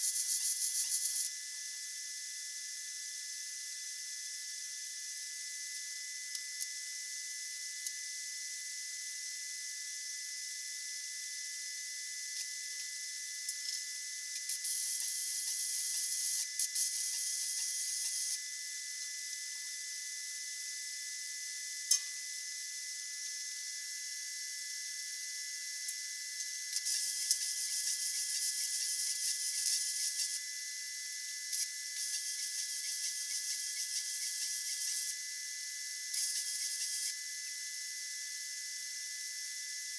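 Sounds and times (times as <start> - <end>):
welding arc noise: 0.0 - 1.3, 12.2 - 18.4, 25.1 - 35.2, 36.1 - 37.2.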